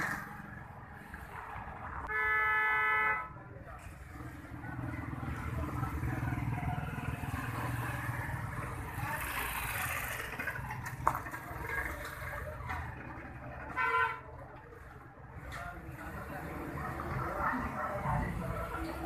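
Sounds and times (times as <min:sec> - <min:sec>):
loud pitched toot: 0:02.1 - 0:03.3
engine rumble: 0:03.4 - 0:19.0.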